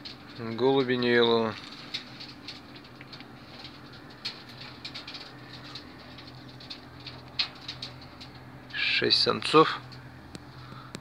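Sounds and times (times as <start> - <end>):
faint steady hum: 0.0 - 11.0
pigeons clicking and scratching: 0.0 - 11.0.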